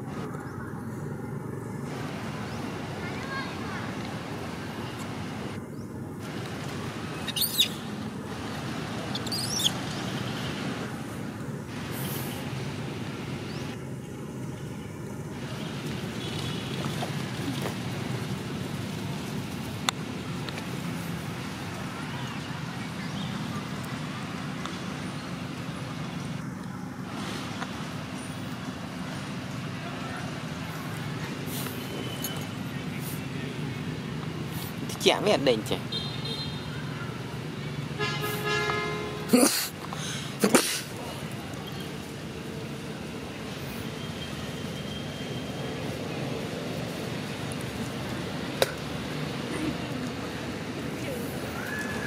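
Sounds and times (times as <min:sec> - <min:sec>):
steady low background noise: 0:00.0 - 0:38.2
high-pitched chirping calls: 0:07.2 - 0:07.9, 0:09.1 - 0:10.0.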